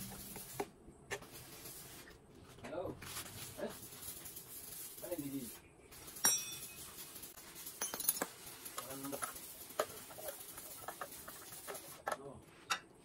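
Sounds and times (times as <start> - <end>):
metal tools clinking on an engine: 6.1 - 6.9, 7.8 - 9.2.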